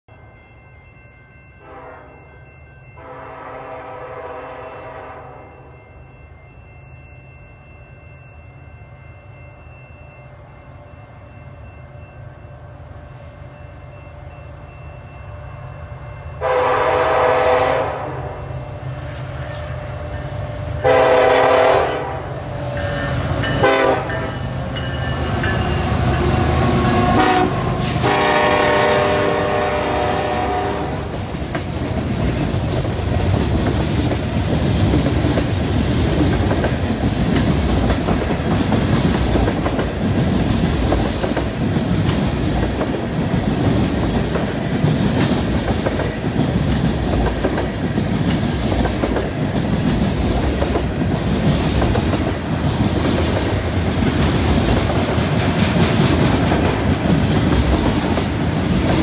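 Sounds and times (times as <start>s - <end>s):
train horn: 1.6s - 2.4s, 3.0s - 5.9s, 15.1s - 31.3s
wheels clicking over rail joints: 31.1s - 59.0s.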